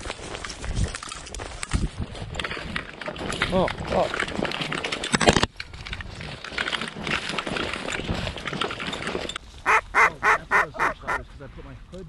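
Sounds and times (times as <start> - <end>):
footsteps crunching through stubble: 0.0 - 5.0
duck quacks: 9.7 - 11.2.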